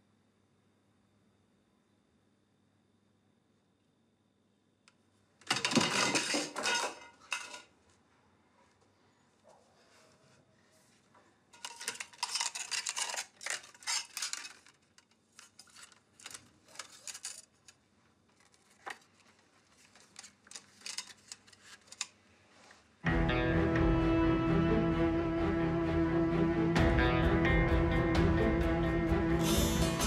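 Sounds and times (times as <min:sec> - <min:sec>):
clicks and rustles of handling: 0:05.4 - 0:08.0, 0:08.6 - 0:22.9
small objects clinking and rattling: 0:05.5 - 0:07.7, 0:11.6 - 0:17.8, 0:20.0 - 0:22.1.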